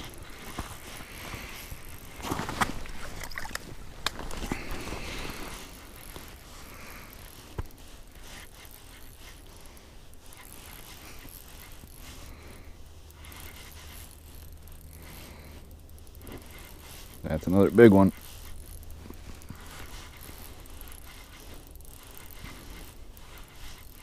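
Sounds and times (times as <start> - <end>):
fishing reel whirring and clicking: 0.0 - 24.0.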